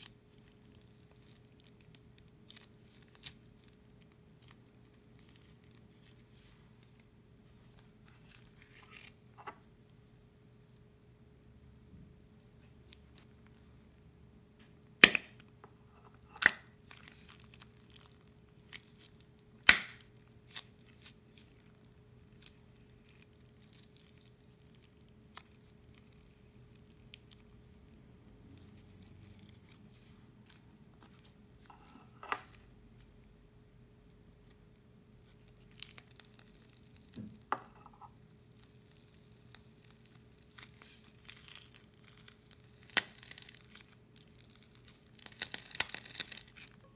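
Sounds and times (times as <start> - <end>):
plastic bag crinkling: 37.8 - 46.9.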